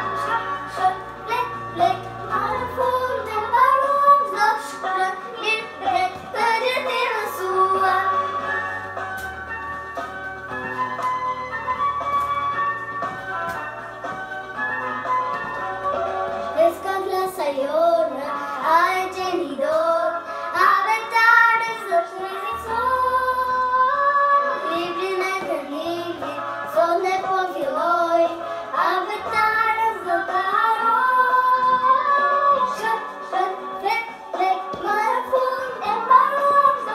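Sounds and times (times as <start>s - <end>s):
girl singing: 0.0s - 8.6s, 16.5s - 36.9s
instrumental backing music: 0.0s - 36.9s.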